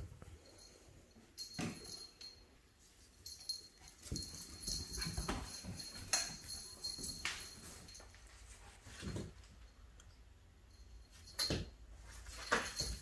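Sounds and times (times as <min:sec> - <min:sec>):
puppies scuffling on tile floor: 0:02.8 - 0:09.6, 0:11.4 - 0:13.0.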